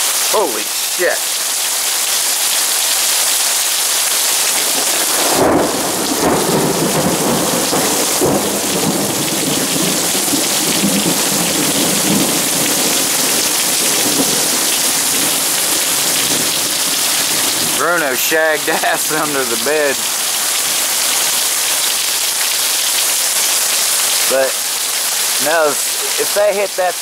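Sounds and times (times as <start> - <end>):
heavy rain pouring: 0.0 - 27.0
thunder rumbling: 4.5 - 21.4.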